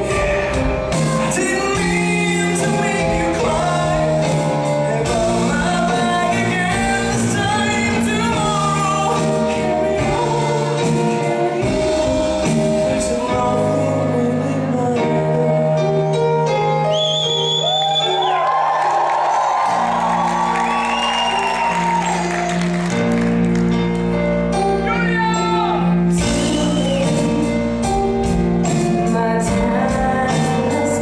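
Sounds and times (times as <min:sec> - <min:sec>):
man singing: 0:00.0 - 0:16.2, 0:24.8 - 0:31.0
band accompaniment: 0:00.0 - 0:31.0.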